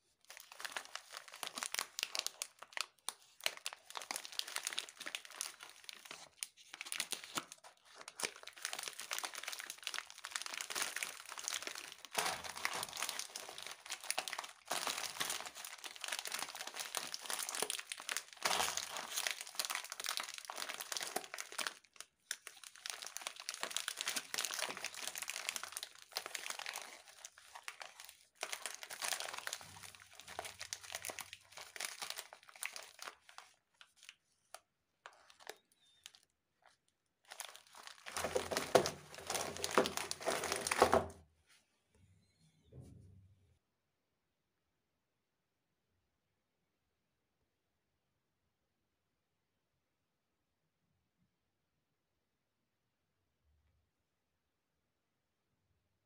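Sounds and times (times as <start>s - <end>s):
plastic wrappers crinkling: 0.2s - 41.2s.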